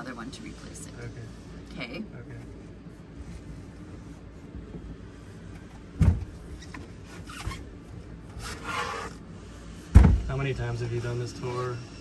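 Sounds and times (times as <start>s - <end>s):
cushion thump: 6.0s - 6.4s, 9.9s - 10.3s.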